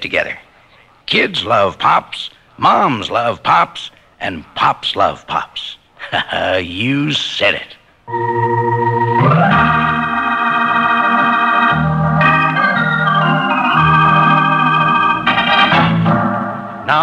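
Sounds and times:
organ chords: 8.1s - 17.0s.

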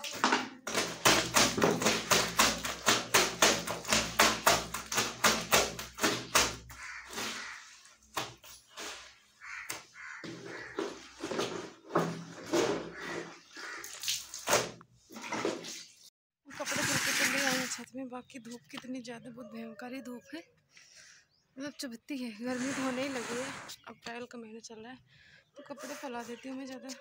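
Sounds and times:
wet clothes scrubbed by hand: 1.5s - 17.8s, 22.4s - 23.7s.

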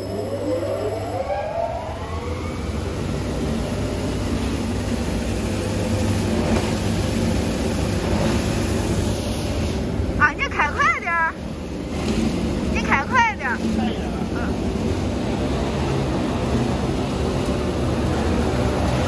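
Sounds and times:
machine whine spinning up: 0.0s - 9.2s.

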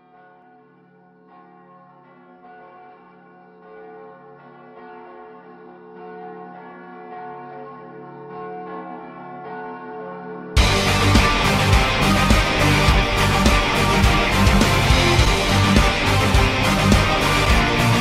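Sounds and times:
church bells tolling: 1.3s - 18.0s.

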